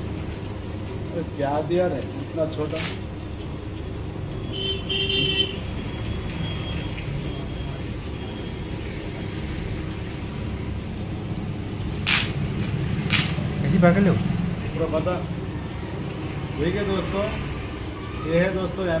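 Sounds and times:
road traffic rumble: 0:00.0 - 0:19.0
vehicle horn toot: 0:04.4 - 0:05.7.

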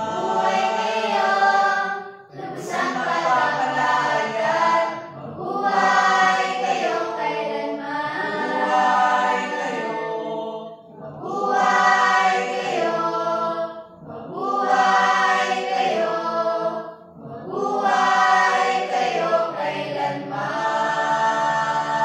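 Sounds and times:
choir singing a cappella: 0:00.0 - 0:22.0.

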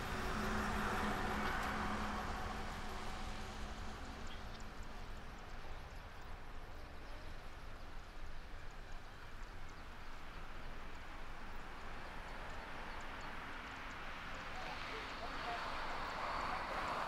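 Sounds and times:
distant jet engine rumble: 0:00.0 - 0:06.6.

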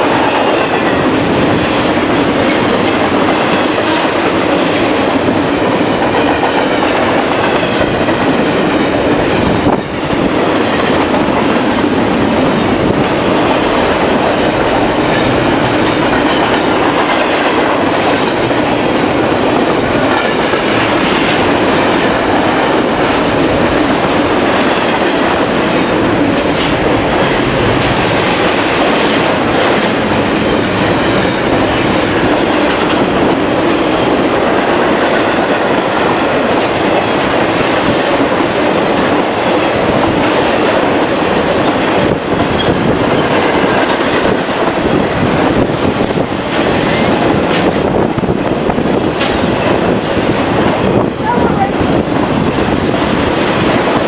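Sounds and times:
freight train wheels rumbling: 0:00.0 - 0:54.0
sharp rail clicks: 0:10.1 - 0:33.8.

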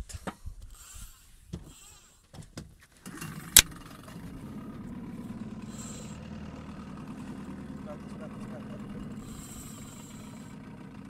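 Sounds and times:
outboard motor running: 0:03.0 - 0:11.0.

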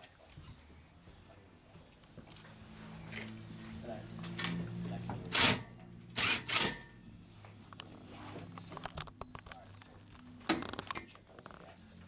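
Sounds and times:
cordless drill driving screws: 0:06.2 - 0:06.8.

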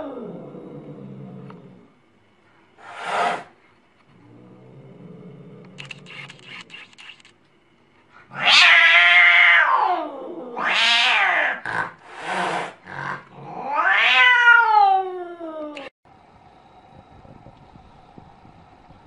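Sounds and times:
cat yowling angrily: 0:08.3 - 0:11.9, 0:12.5 - 0:15.9.

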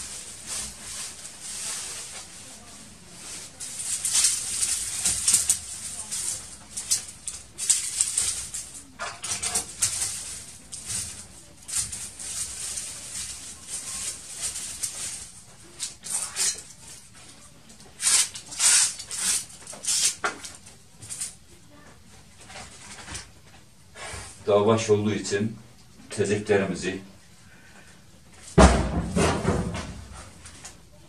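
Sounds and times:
dry twigs rustling and snapping: 0:03.4 - 0:17.1, 0:17.7 - 0:21.4.

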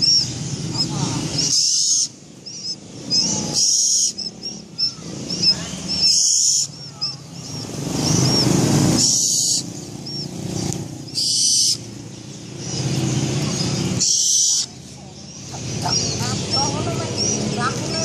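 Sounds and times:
owl hissing: 0:00.0 - 0:11.9, 0:13.7 - 0:14.8.

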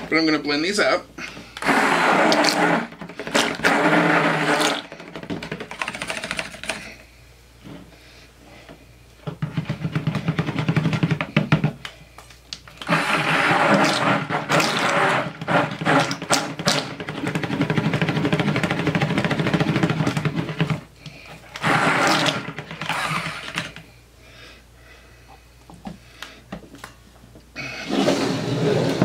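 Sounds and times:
stick blender running: 0:01.6 - 0:06.4, 0:12.7 - 0:23.8.

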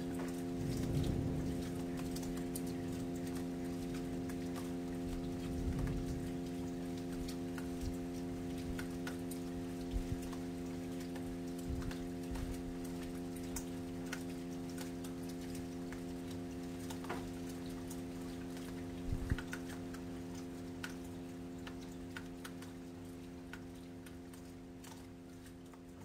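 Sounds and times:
sustained keyboard chord: 0:00.0 - 0:08.8.

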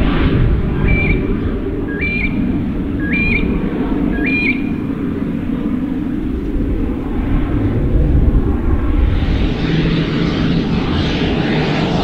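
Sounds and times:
turboprop engine rumble: 0:00.0 - 0:12.0
bird chirping: 0:00.8 - 0:01.3, 0:01.9 - 0:05.0.

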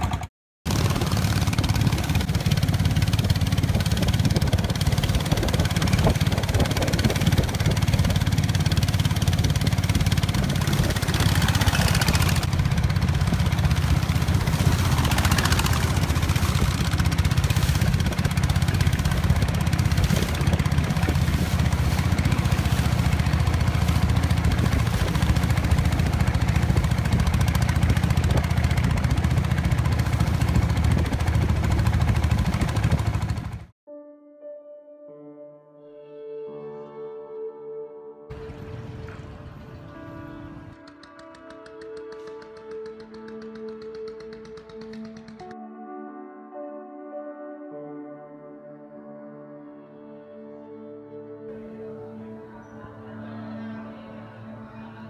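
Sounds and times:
boat engine running: 0:00.0 - 0:33.7, 0:38.3 - 0:45.5
water rushing past hull: 0:00.7 - 0:33.6.

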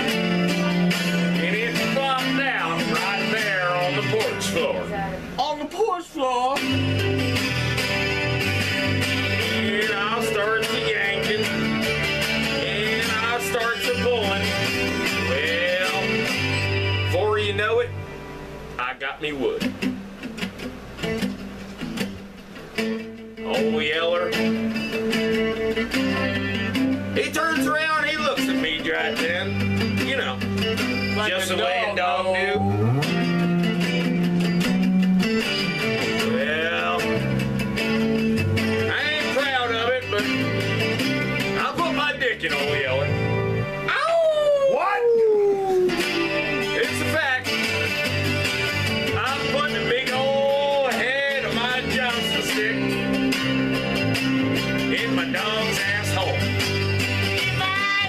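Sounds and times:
acoustic guitar strumming: 0:00.0 - 0:58.0
wordless wavering voice: 0:31.8 - 0:33.1, 0:43.9 - 0:46.4.

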